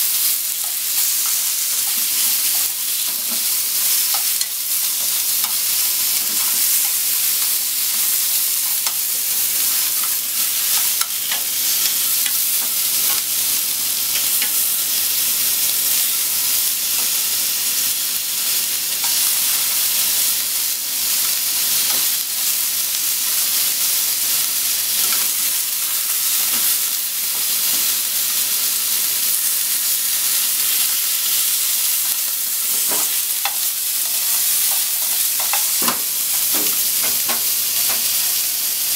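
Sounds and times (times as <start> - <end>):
pork sizzling in frying pan: 0.0 - 38.9.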